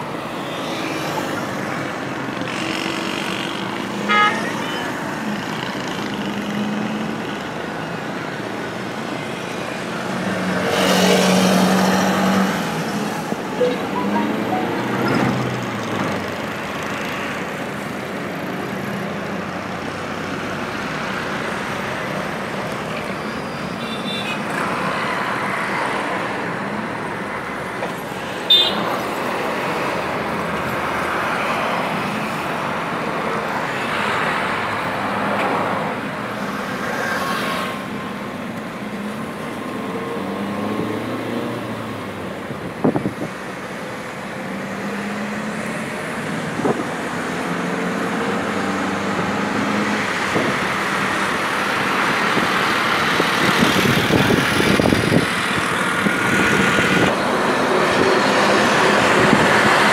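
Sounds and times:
engine and tyre noise: 0.0 - 59.9
traffic passing close by: 0.0 - 59.9.

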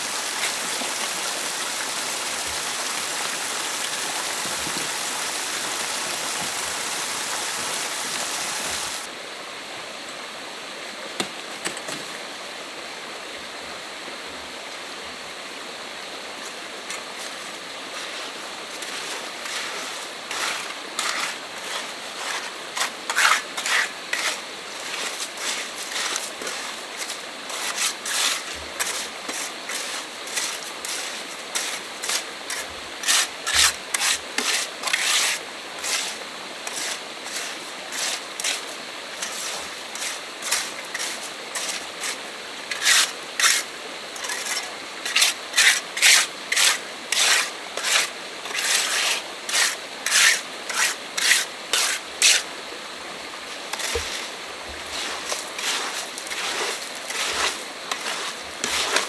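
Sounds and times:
rough rasping strokes: 18.8 - 52.5, 53.7 - 59.0.

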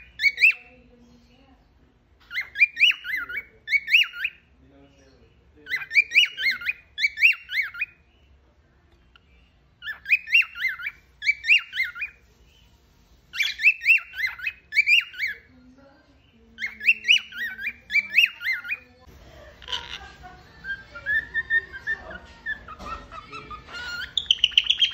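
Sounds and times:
cockatiel whistling a tune: 0.0 - 0.6, 2.3 - 4.4, 5.7 - 8.0, 9.8 - 12.2, 13.3 - 15.5, 16.6 - 18.9, 20.6 - 24.9.

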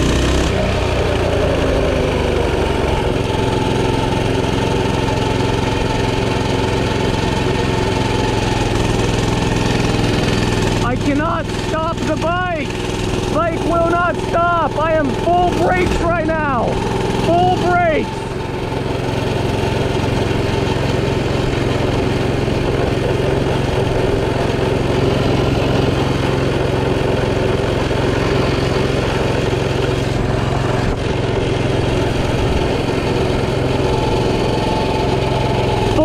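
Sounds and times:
small engine running at high speed: 0.0 - 36.0.

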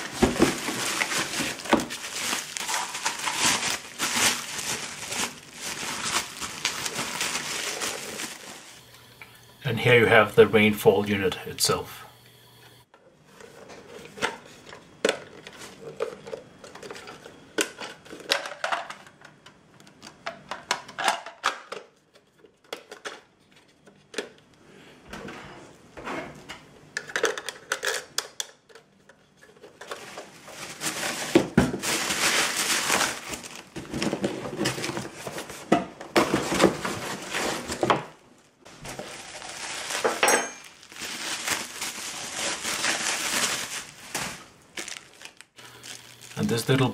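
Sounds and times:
bubble wrap crinkling: 0.0 - 8.9, 29.6 - 35.7, 36.3 - 46.9.

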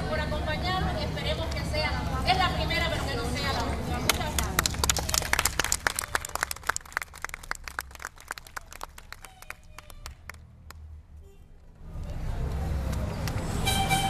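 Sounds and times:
small group clapping: 4.0 - 10.9.

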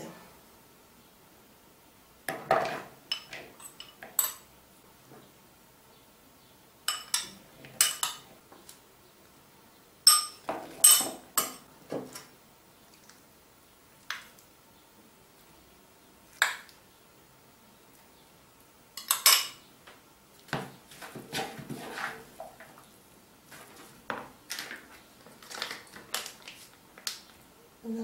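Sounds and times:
metal spoon clinking on ceramic bowls: 3.1 - 4.5, 6.9 - 8.2, 10.1 - 11.6, 19.0 - 19.6.

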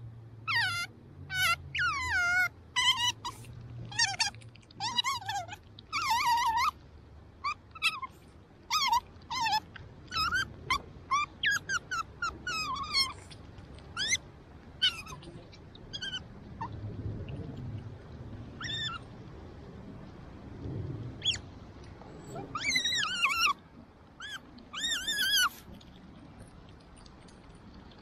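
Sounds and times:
otter chirping squeaks: 0.5 - 6.8, 7.4 - 16.8, 18.6 - 19.1, 21.2 - 21.5, 22.2 - 23.6, 24.2 - 26.0.

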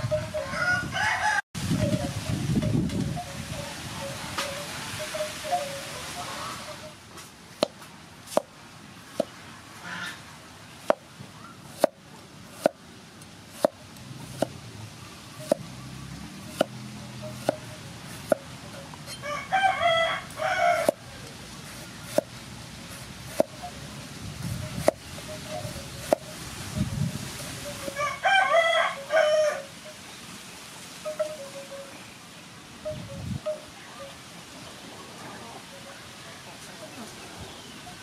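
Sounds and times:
rooster crowing: 0.3 - 1.5, 19.1 - 21.2, 27.8 - 29.7
cleaver slicing on wooden board: 21.7 - 22.3.

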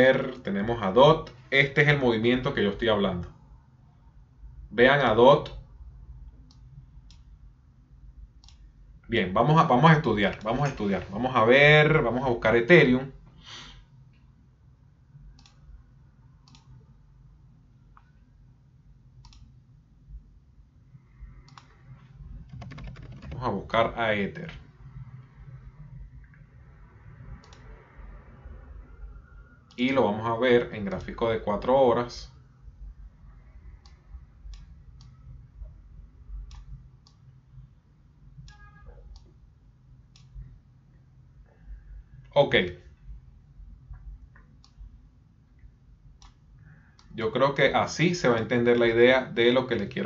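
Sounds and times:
low room hum: 0.0 - 50.0
faint mouse clicks: 6.3 - 7.3, 8.4 - 8.7, 15.4 - 15.7, 16.4 - 16.8, 19.2 - 19.6, 21.4 - 23.4, 27.4 - 27.7, 36.4 - 37.3, 40.1 - 40.5, 45.6 - 47.1.

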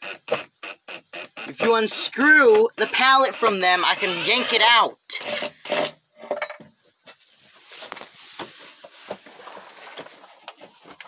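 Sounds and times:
straw rustling underfoot: 7.2 - 11.0.

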